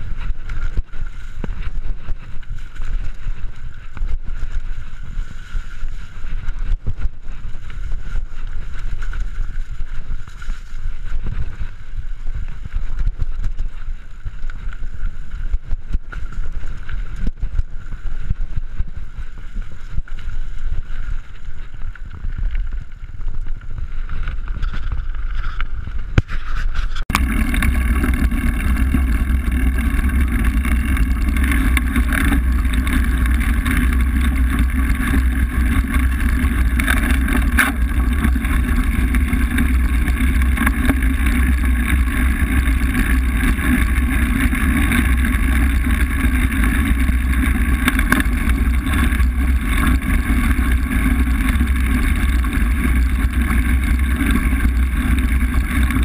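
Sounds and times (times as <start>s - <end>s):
bike tyre rolling over gravel: 0.0s - 56.0s
wind rumble on microphone: 0.0s - 56.0s
loose stones clicking: 27.1s - 56.0s.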